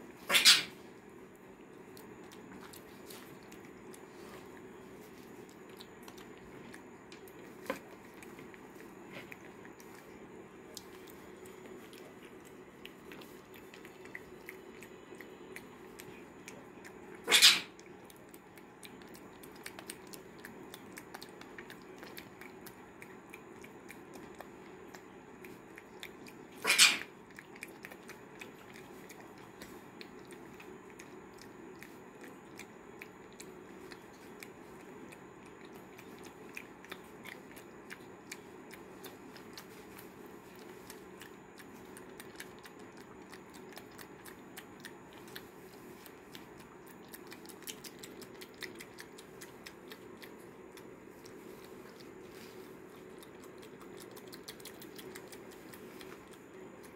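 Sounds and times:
monkey chewing with wet mouth clicks: 0:01.6 - 0:56.9.

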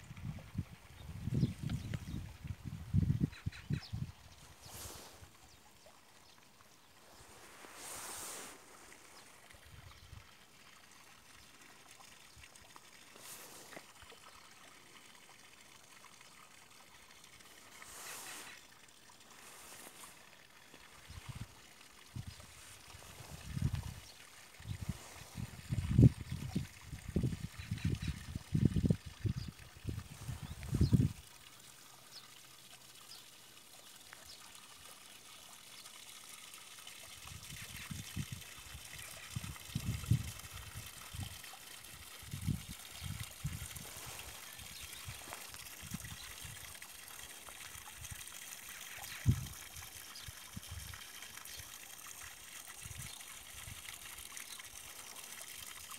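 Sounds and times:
wind rumble on microphone: 0:00.0 - 0:05.0, 0:21.0 - 0:31.2, 0:37.3 - 0:46.8, 0:49.1 - 0:49.6, 0:50.5 - 0:51.0
faint trickle of water: 0:00.0 - 0:55.9
hiss: 0:04.6 - 0:05.3, 0:07.2 - 0:08.9, 0:17.7 - 0:18.6.

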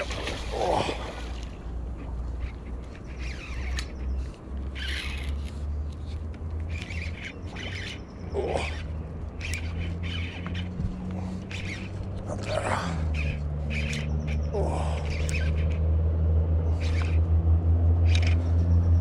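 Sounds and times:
steady low hum: 0:00.0 - 0:19.0
bird squawking: 0:02.3 - 0:05.5, 0:06.7 - 0:15.8, 0:16.6 - 0:17.3, 0:18.0 - 0:18.6
fishing reel clicking: 0:02.4 - 0:10.7, 0:11.3 - 0:12.3, 0:13.1 - 0:15.8, 0:16.8 - 0:17.2, 0:18.0 - 0:18.4.

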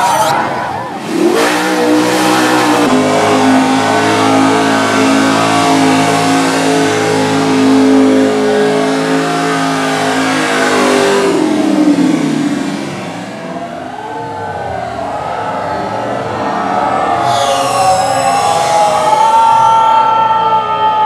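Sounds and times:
truck churning through mud: 0:00.0 - 0:13.9
truck engine revving hard: 0:00.0 - 0:19.8.

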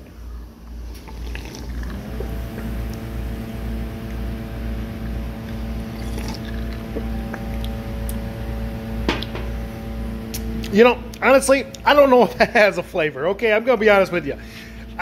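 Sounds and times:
motor hum: 0:00.2 - 0:15.0
man gulping soda: 0:00.9 - 0:03.0, 0:05.4 - 0:07.7
low pulsing throb: 0:01.9 - 0:12.0.

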